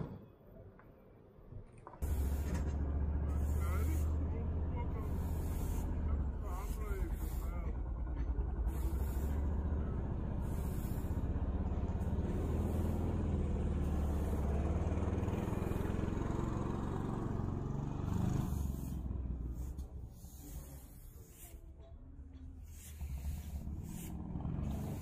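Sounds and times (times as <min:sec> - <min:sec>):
brooms sweeping paving: 0:02.0 - 0:25.0
heavy vehicle rumbling: 0:02.0 - 0:25.0.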